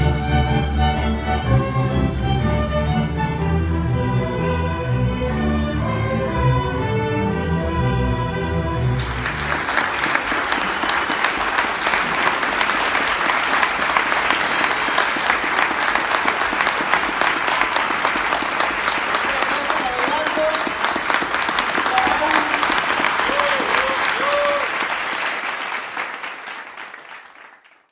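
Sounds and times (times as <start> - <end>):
string orchestra playing: 0.0 - 23.5
audience applause: 8.8 - 27.9.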